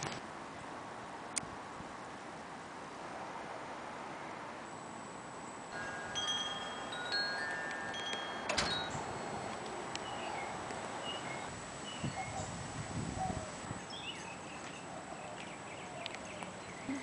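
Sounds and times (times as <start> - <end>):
hanging metal chimes ringing: 5.7 - 11.2.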